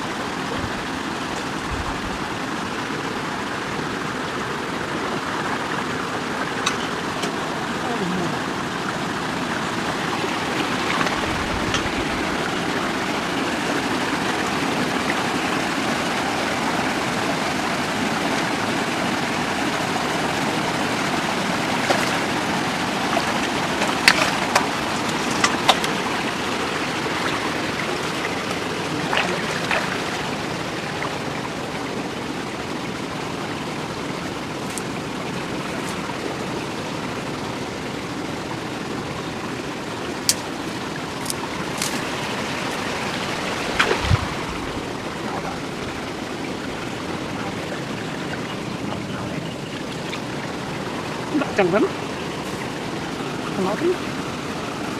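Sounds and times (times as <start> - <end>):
flowing water rushing: 0.0 - 54.9
splashes: 9.9 - 31.9, 40.4 - 54.4.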